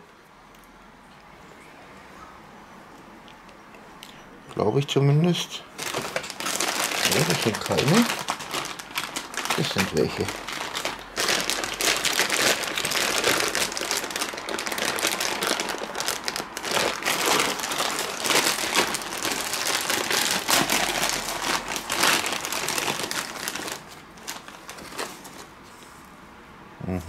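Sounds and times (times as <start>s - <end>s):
plastic bag crinkling: 5.3s - 25.6s.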